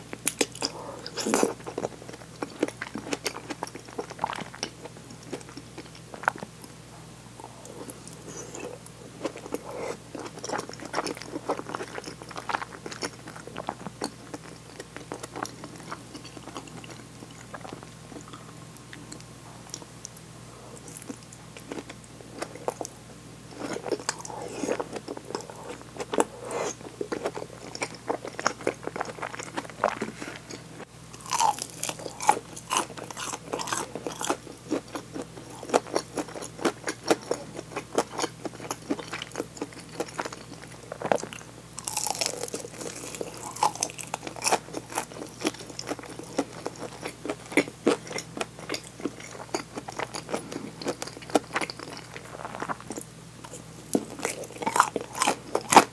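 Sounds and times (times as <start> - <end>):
chewing and mouth clicks: 23.6 - 30.6, 31.2 - 55.9
crunchy bites into fried chicken: 41.2 - 48.6.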